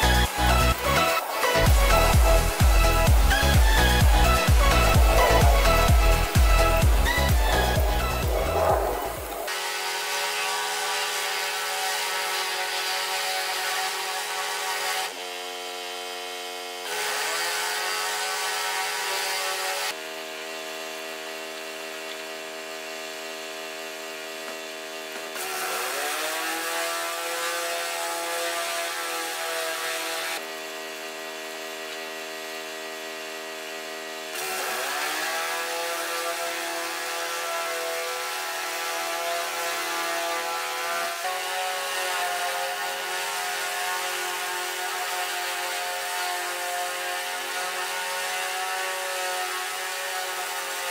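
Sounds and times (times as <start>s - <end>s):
pressure washer running: 0.0s - 9.5s.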